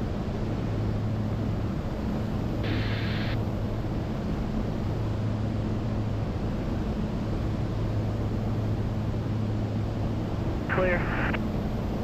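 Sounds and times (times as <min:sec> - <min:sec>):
aircraft engine and propeller hum: 0:00.0 - 0:12.0
rushing air hiss: 0:02.6 - 0:03.4.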